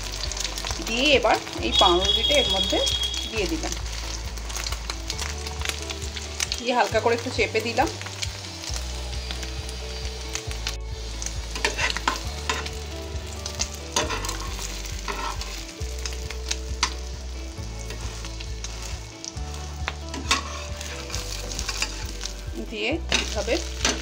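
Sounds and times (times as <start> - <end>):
toast frying in oil: 0.0 - 24.0
metal spatula scraping pan: 11.6 - 12.7, 13.9 - 15.6, 20.1 - 22.1.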